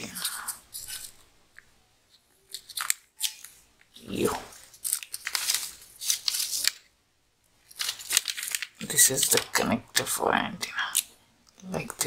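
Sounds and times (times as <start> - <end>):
plastic bag crinkling: 2.4 - 6.9, 7.6 - 9.6.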